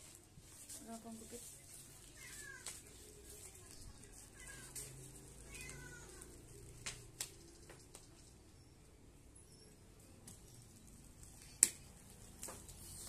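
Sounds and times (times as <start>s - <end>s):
plastic wrap rustling: 0.0s - 8.2s
cat meowing faintly: 4.3s - 6.5s.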